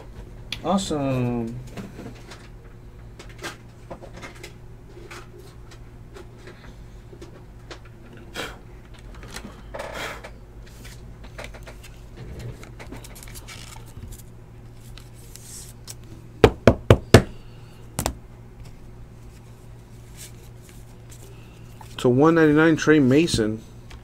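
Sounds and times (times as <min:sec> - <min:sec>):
trading cards rustling: 0:12.8 - 0:16.1.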